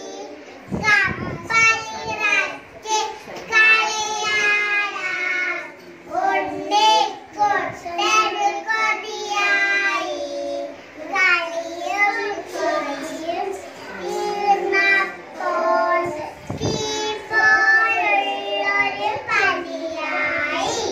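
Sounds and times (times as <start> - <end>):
girls singing into a microphone: 0.0 - 20.9.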